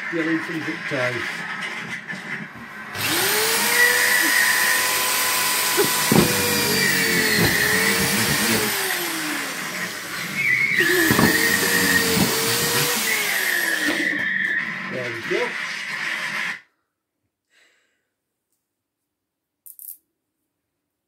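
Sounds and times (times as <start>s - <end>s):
power drill motor whine: 2.9s - 14.7s
sharp knocks: 5.7s - 8.8s, 10.9s - 13.0s.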